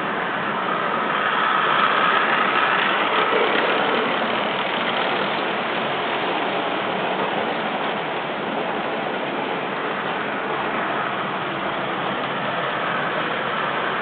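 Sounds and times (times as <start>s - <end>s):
model train motors whirring: 0.0s - 8.8s.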